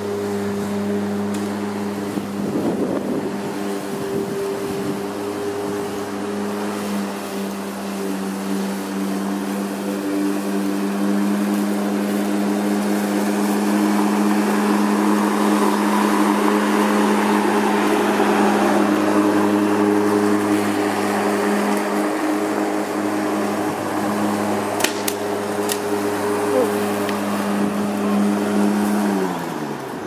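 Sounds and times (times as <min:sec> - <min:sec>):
lawn mower running: 0:00.0 - 0:30.0.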